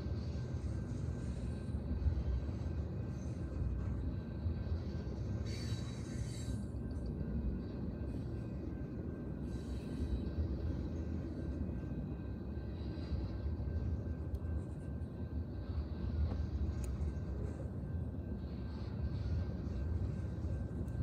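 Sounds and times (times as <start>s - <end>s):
train wheels rumbling on rail: 0.0s - 21.0s.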